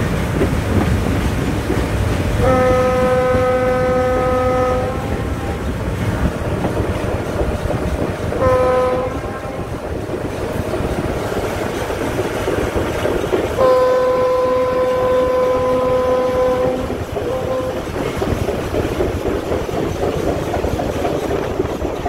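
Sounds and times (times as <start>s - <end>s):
wheels clattering over rail joints: 0.0s - 22.0s
train air horn blasts: 2.4s - 5.7s, 8.4s - 9.8s, 13.5s - 18.0s.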